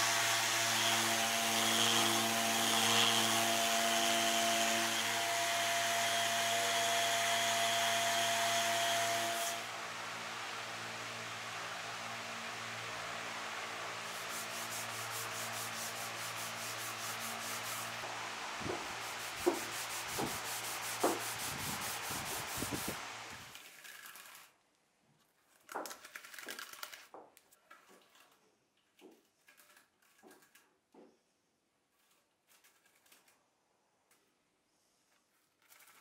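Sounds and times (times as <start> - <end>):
sanding pad rubbing wood: 14.0 - 23.4.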